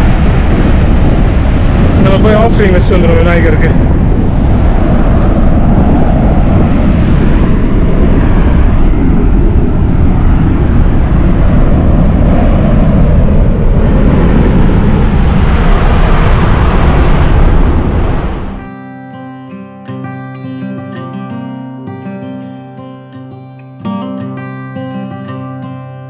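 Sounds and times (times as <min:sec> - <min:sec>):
volcano crater venting gas: 0:00.0 - 0:18.6.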